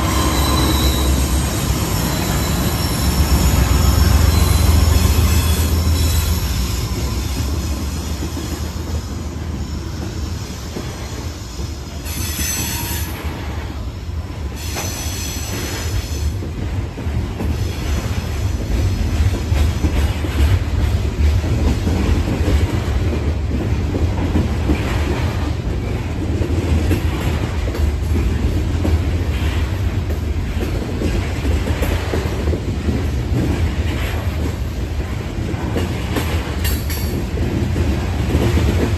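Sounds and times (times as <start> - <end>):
high-pitched wheel squeal: 0.0 - 8.2
rumble of train wheels on rail: 0.0 - 38.9.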